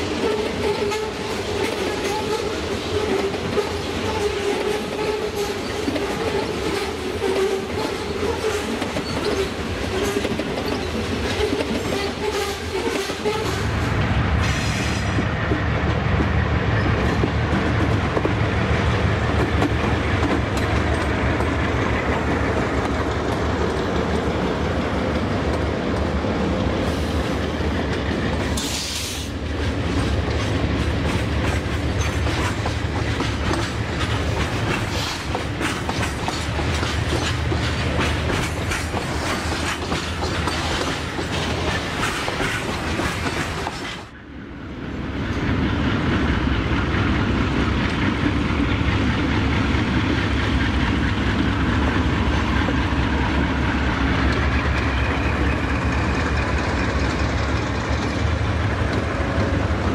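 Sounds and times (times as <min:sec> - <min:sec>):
train wagons rumbling: 0:00.0 - 0:59.9
wheels clicking over rail joints: 0:27.8 - 0:44.1.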